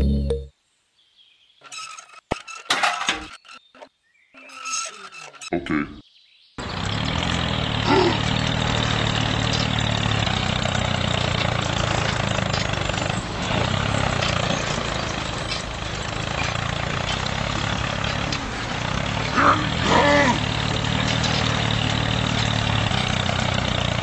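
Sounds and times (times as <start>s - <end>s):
model tractor motor running: 6.6s - 24.0s.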